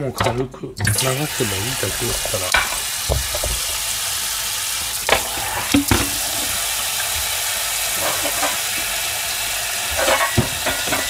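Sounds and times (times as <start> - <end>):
tap water running into sink: 0.2 - 11.0
plastic containers knocking: 1.9 - 3.9, 5.1 - 6.5.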